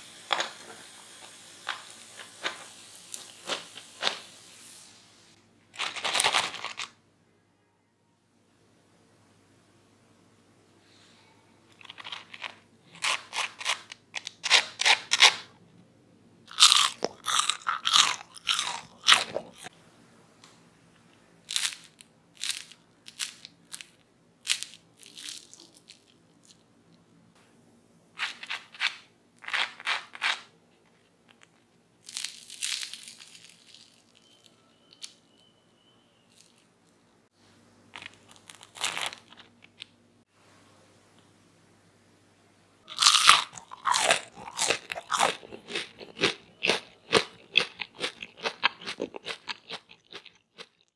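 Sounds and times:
crispy fries crunching: 0:11.8 - 0:15.5, 0:16.5 - 0:19.7, 0:21.4 - 0:26.6, 0:31.3 - 0:35.2, 0:37.9 - 0:39.9, 0:42.9 - 0:50.9.

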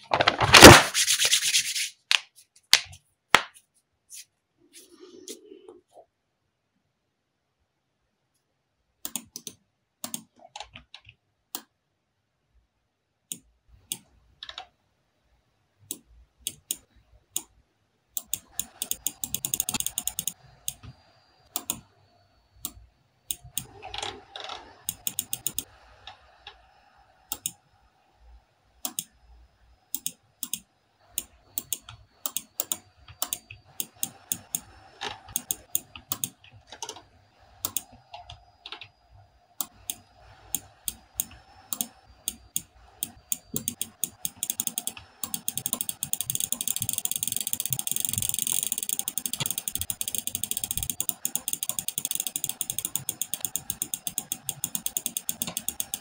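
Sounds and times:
keyboard keys clicking: 0:18.2 - 0:20.8, 0:24.8 - 0:25.7, 0:35.3 - 0:36.9, 0:40.6 - 0:56.0
mouse buttons clicking: 0:18.2 - 0:20.9, 0:24.8 - 0:25.7, 0:30.0 - 0:34.7, 0:35.3 - 0:36.4, 0:37.6 - 0:38.9, 0:39.6 - 0:56.0.

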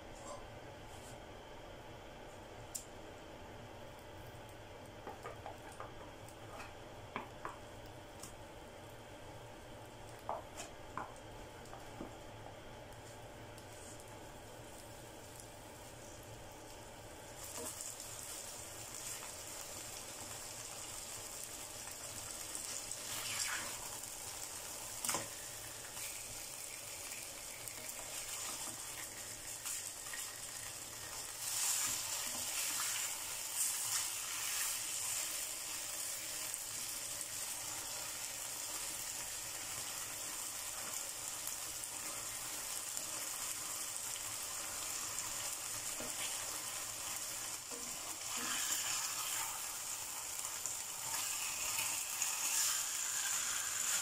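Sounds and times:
steaks sizzling in a frying pan: 0:17.4 - 0:54.0.

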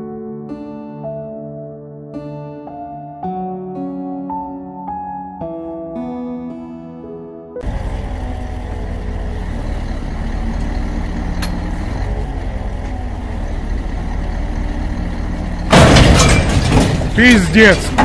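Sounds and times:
crane crashing over: 0:07.6 - 0:18.0
diesel engine running: 0:07.6 - 0:18.0.

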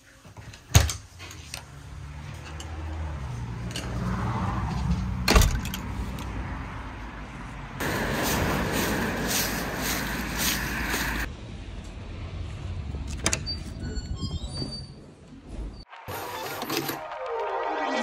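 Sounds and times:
footsteps crunching through leaves: 0:07.8 - 0:11.3.

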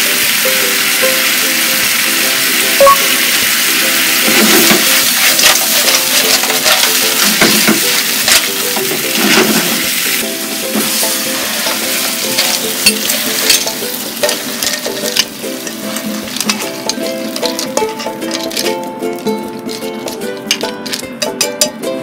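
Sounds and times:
clams sizzling in a wok: 0:00.0 - 0:21.8
shells clattering against pan: 0:04.3 - 0:09.7, 0:11.6 - 0:18.9, 0:19.7 - 0:21.8.

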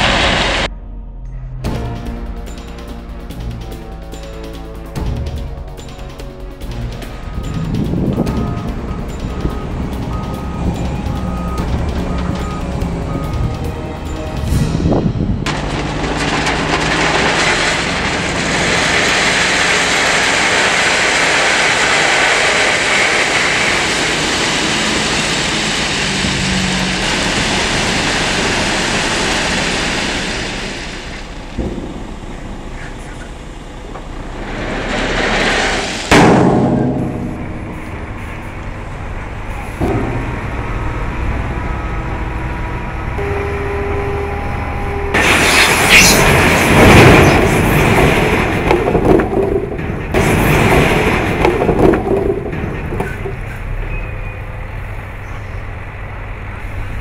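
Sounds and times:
diesel engine hum: 0:00.0 - 0:57.0
loud crash: 0:14.3 - 0:33.5, 0:34.1 - 0:38.5, 0:45.1 - 0:54.3
gravel sliding out: 0:14.5 - 0:31.3, 0:34.3 - 0:36.1, 0:45.1 - 0:54.2.

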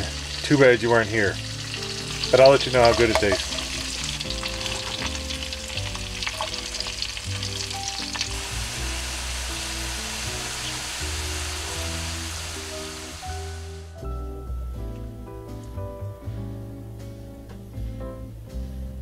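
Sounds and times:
fat crackling and popping: 0:00.0 - 0:13.2
steak sizzling in a skillet: 0:00.0 - 0:13.9
low background music: 0:00.0 - 0:19.0.

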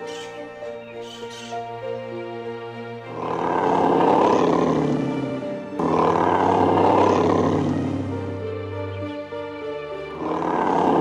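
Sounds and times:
background music with held tones: 0:00.0 - 0:11.0
large animal roaring: 0:03.0 - 0:08.6, 0:10.1 - 0:11.0.

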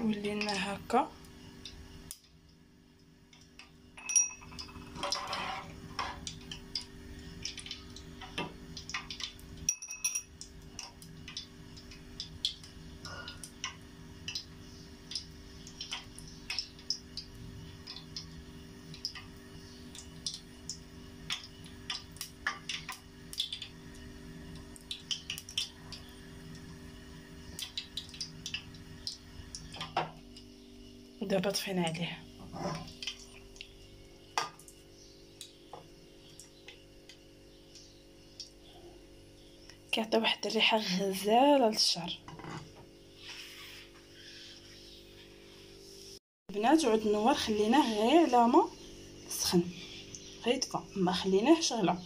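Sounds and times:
oil crackling in a saucepan: 0:00.0 - 0:52.0.

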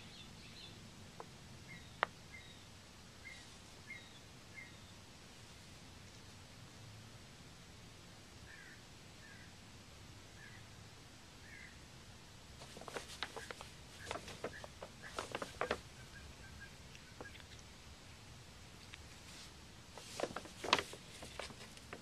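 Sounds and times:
paper bag crinkling: 0:12.6 - 0:16.2, 0:19.2 - 0:22.0.

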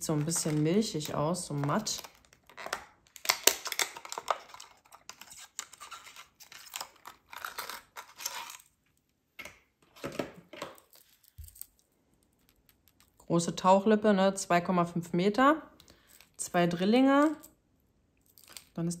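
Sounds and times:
plastic packaging clicks and crinkling: 0:00.0 - 0:08.7.

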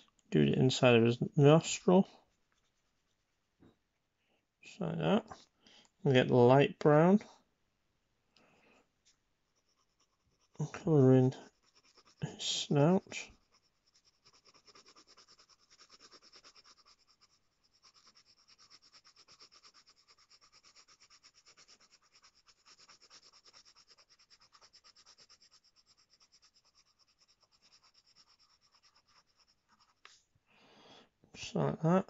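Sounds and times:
pencil scratching on paper: 0:09.5 - 0:30.2.

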